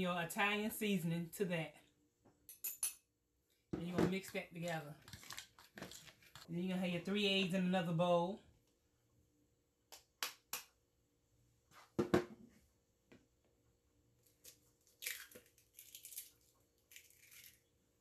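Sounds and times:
eggshell crackling: 14.3s - 17.8s.

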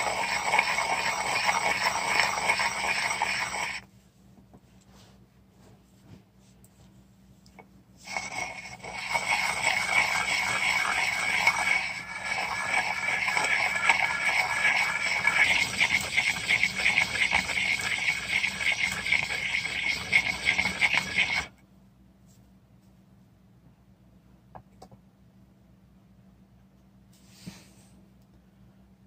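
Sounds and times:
stone grinding wet paste: 0.0s - 3.8s, 8.0s - 21.5s.

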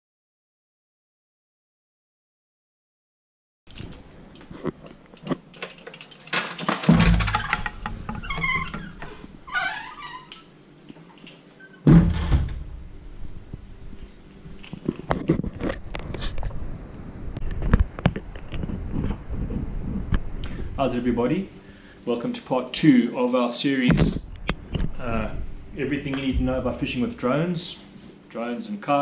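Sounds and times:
heavy thumps: 11.9s - 13.7s.

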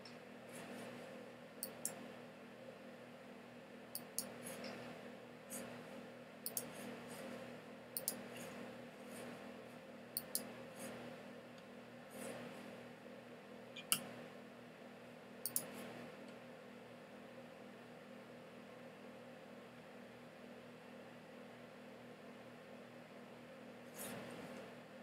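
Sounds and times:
faint room hum: 0.0s - 25.0s
computer mouse clicking: 1.6s - 2.0s, 4.0s - 4.8s, 6.4s - 6.7s, 8.0s - 8.2s, 10.2s - 10.5s, 15.4s - 15.7s.

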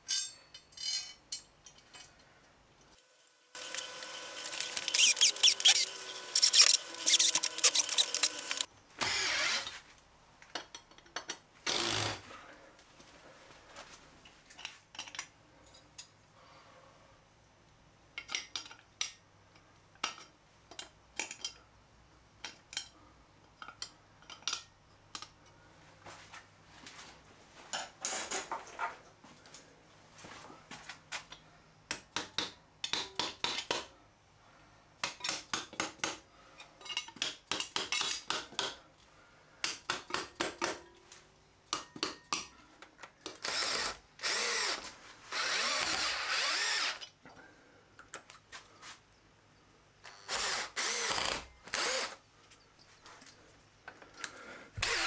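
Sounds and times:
cordless drill driving screws: 3.5s - 9.7s, 11.7s - 12.2s, 43.4s - 47.0s, 50.1s - 52.2s, 54.8s - 55.0s.

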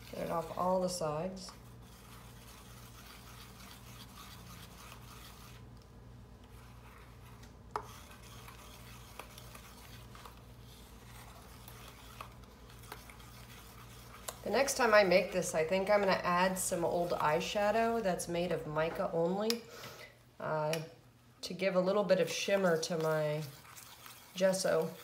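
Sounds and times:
stirring paste in metal bowl: 0.0s - 18.1s, 21.6s - 25.0s.

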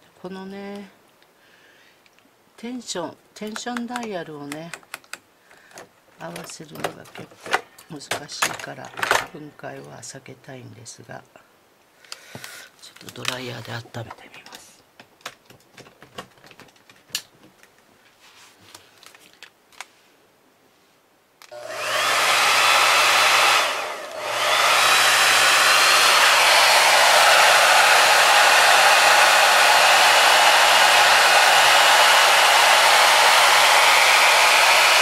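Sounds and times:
hair dryer blowing: 21.5s - 35.0s.

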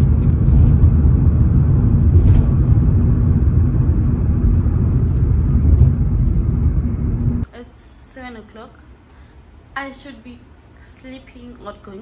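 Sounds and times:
loud buffeting low rumble: 0.0s - 7.5s.

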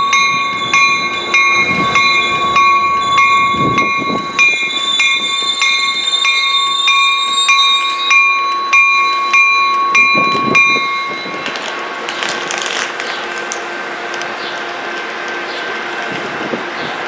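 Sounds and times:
railroad bell ringing: 0.0s - 12.2s
train noise: 0.0s - 17.0s.

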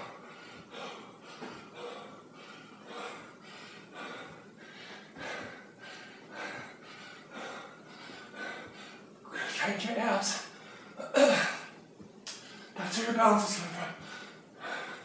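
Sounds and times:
man breathing hard: 0.0s - 9.6s, 14.0s - 15.0s.

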